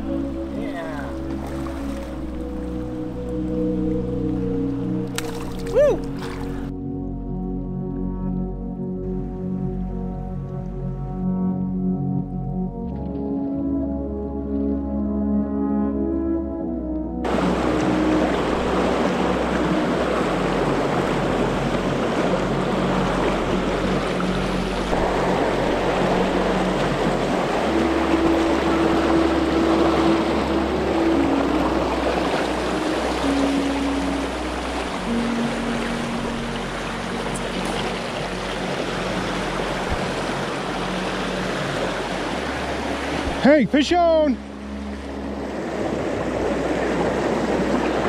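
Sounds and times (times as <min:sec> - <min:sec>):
river water rushing over rocks: 0:00.0 - 0:03.0, 0:17.3 - 0:48.0.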